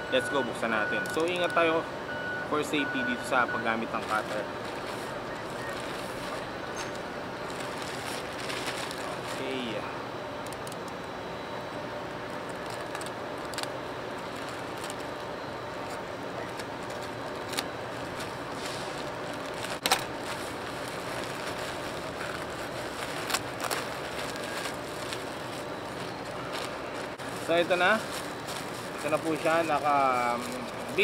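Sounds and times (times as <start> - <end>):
steady background hiss: 0.0 - 31.0
plastic pouch crinkling: 3.8 - 6.6, 7.4 - 9.7, 12.3 - 31.0.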